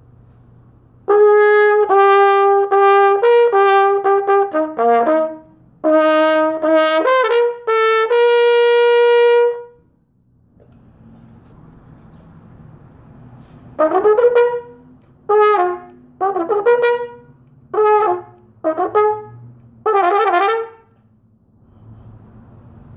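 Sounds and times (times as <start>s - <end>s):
solo brass instrument: 1.0s - 9.9s, 13.4s - 21.0s.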